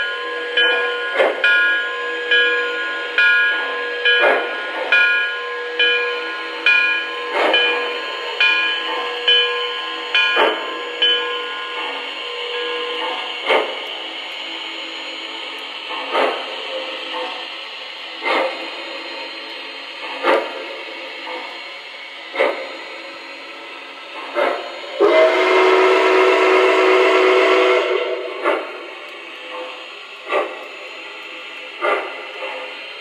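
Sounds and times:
sharp track clicks: 5.9 - 25.0
steam whistle: 24.9 - 28.5.

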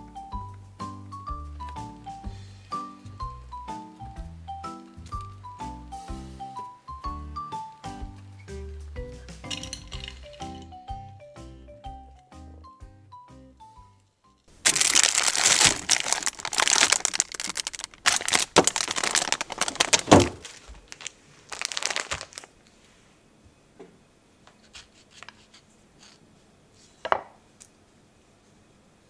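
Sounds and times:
plastic wrapper crinkling: 14.6 - 22.6.

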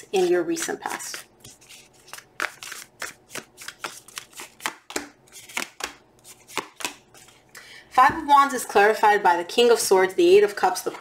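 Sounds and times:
cards being shuffled: 0.2 - 7.4.

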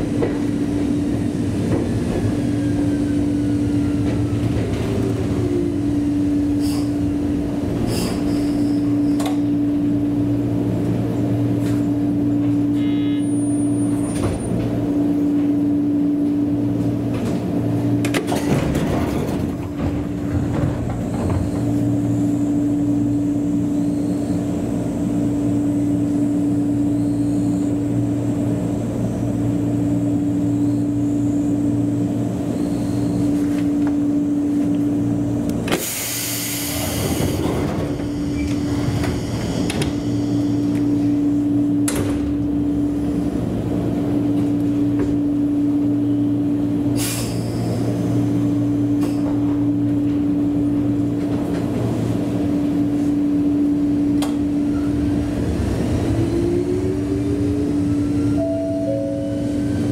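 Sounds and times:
electric train equipment hum: 0.0 - 59.9
air hiss: 35.8 - 37.4.

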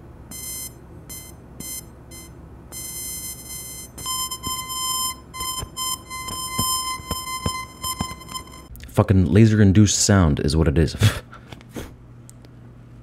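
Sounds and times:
high-pitched laser buzzing tone: 0.3 - 8.7.

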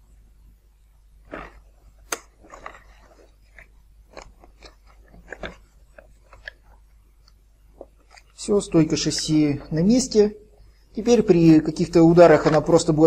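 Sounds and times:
small clicks and scrapes: 1.3 - 8.4.

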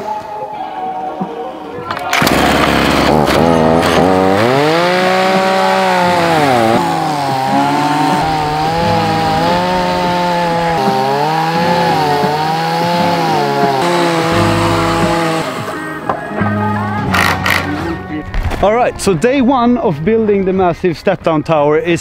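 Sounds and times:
chainsaw cutting wood: 2.1 - 15.8, 17.1 - 17.8.

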